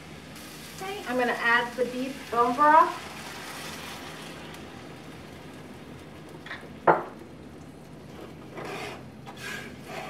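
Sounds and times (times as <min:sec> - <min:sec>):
meat and vegetables sizzling: 0:00.0 - 0:10.0
broth pouring into pan: 0:00.4 - 0:06.5
spatula scraping pan: 0:08.1 - 0:10.0.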